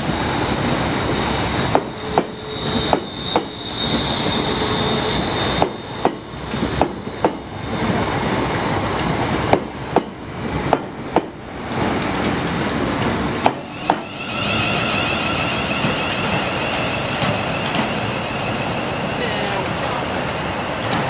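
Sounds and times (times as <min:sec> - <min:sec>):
high wheel squeal: 0:00.2 - 0:08.5, 0:13.5 - 0:20.8.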